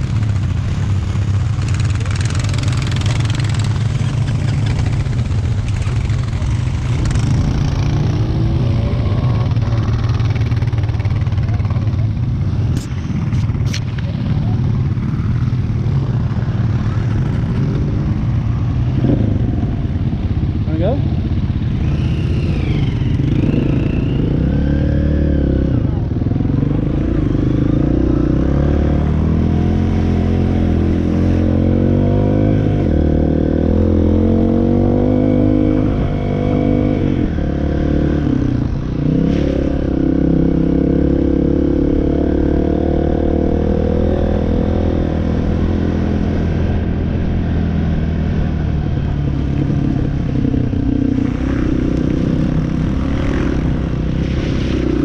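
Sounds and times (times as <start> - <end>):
off-road engine revving: 21.7 - 55.0.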